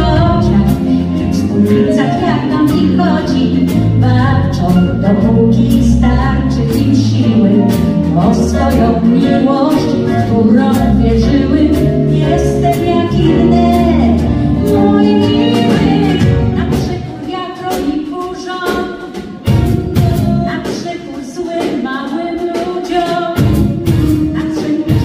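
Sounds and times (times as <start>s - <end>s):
live pop band: 0.0s - 25.0s
woman singing: 0.0s - 25.0s
drum beat: 7.2s - 25.0s.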